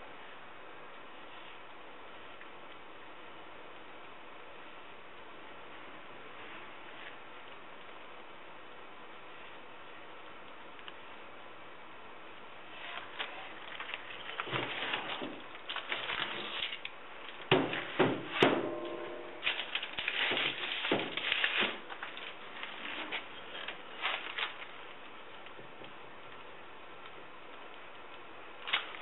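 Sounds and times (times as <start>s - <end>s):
loud knocks with ringing: 17.5s - 19.4s.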